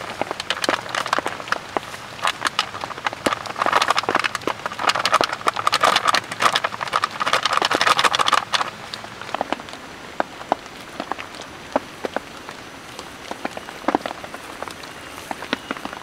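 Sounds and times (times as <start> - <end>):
plastic packet crinkling: 0.0 - 12.4.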